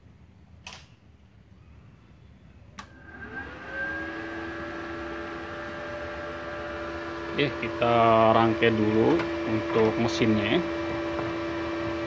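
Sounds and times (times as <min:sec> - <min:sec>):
cooling fan humming: 0:02.8 - 0:12.0.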